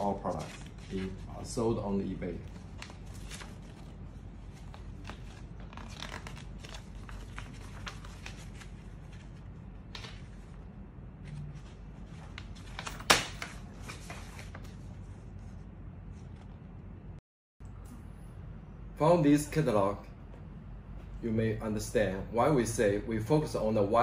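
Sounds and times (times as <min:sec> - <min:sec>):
paper pages rustling: 0:00.0 - 0:01.6, 0:02.4 - 0:16.6.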